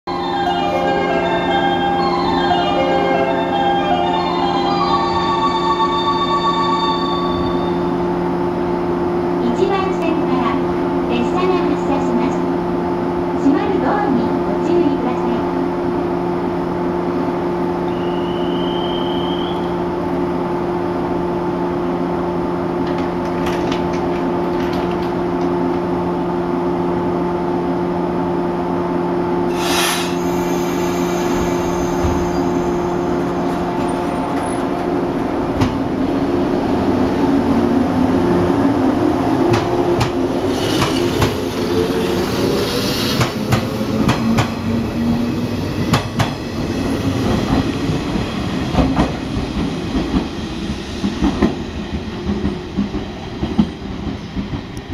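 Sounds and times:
electric train humming: 0.1s - 54.9s
air hiss: 29.5s - 32.0s
train motor whine: 29.5s - 34.8s
train wheels clacking: 39.4s - 41.6s, 42.9s - 44.7s, 45.8s - 46.4s, 47.1s - 54.9s.

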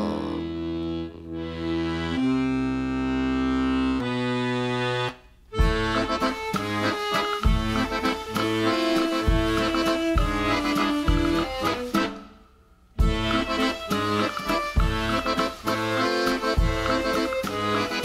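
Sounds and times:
accordion holding chords: 0.0s - 12.3s, 13.0s - 18.0s
band with thumping beat: 5.5s - 12.2s, 13.0s - 18.0s.

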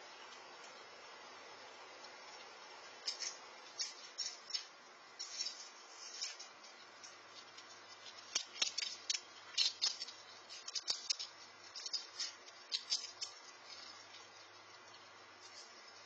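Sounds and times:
squirrel cracking peanuts: 0.0s - 16.0s.

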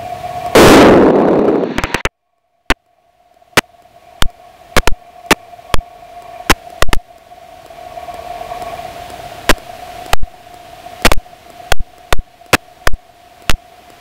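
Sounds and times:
wind and engine rush: 0.0s - 2.1s, 2.7s - 14.0s
faint hum: 0.0s - 14.0s
sharp clicks: 2.7s - 14.0s.

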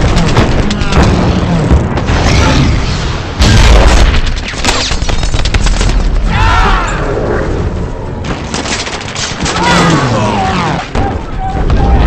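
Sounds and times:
rapid machine-gun fire: 0.0s - 2.0s.

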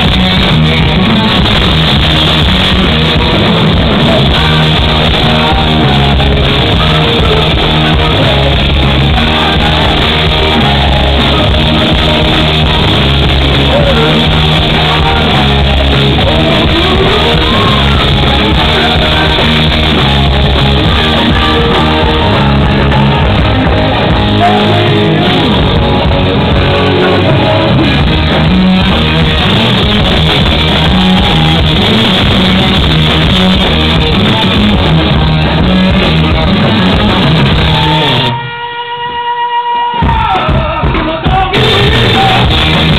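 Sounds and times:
man singing: 0.0s - 28.5s, 29.3s - 33.4s, 35.4s - 42.9s
drums: 0.0s - 42.9s
electric guitar: 0.0s - 42.9s.

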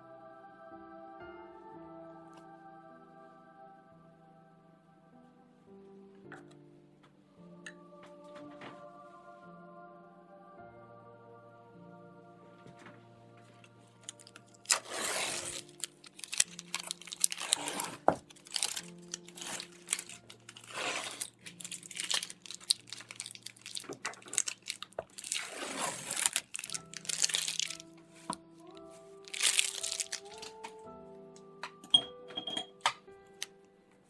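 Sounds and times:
soft background music: 0.0s - 34.0s
masking tape ripping: 14.0s - 27.9s, 29.3s - 30.7s.

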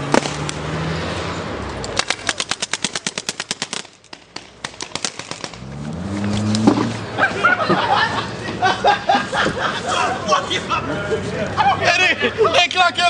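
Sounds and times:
paintball markers firing: 1.8s - 5.6s
car engine running: 5.4s - 8.6s.

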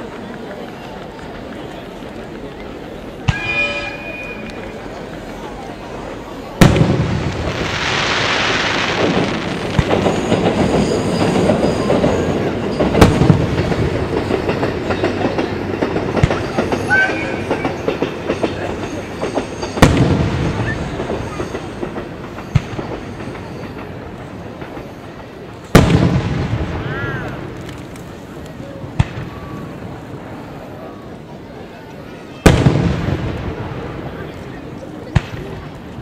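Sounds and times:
firework crackling: 1.0s - 31.3s, 32.2s - 36.0s
firework hiss: 6.6s - 14.0s
firework bangs: 6.6s - 18.6s, 19.2s - 25.0s, 25.7s - 30.4s, 32.4s - 36.0s.

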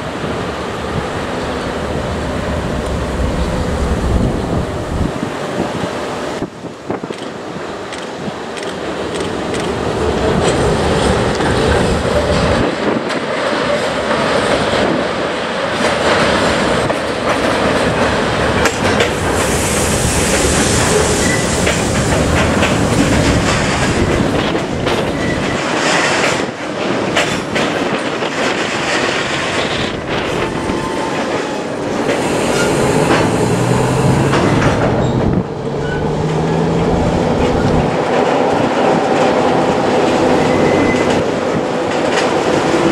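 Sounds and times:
train wheels rumbling on rail: 0.0s - 42.9s
wheels clacking over rail joints: 6.4s - 42.9s
high-pitched wheel squeal: 35.8s - 36.3s, 40.4s - 41.2s.

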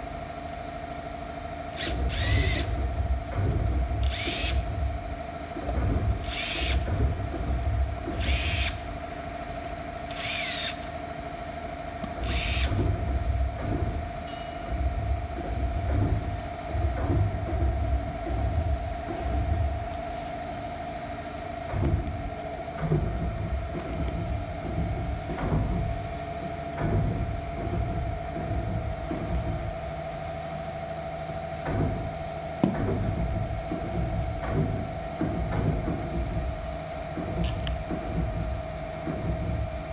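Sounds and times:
steady hum: 0.0s - 39.9s
cordless drill whirring: 1.7s - 2.8s, 4.0s - 4.6s, 6.2s - 6.8s, 8.1s - 8.8s, 10.1s - 11.0s, 12.2s - 12.8s.

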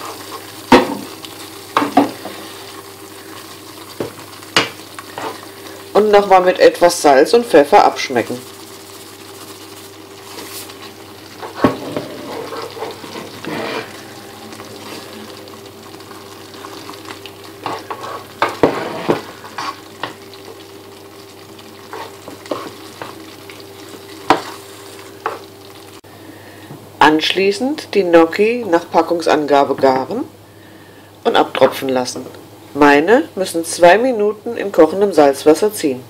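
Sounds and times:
sauce bubbling and sizzling: 0.0s - 26.7s
faint steady hum: 0.0s - 36.0s
metal spoon scraping a pan: 11.8s - 14.2s.

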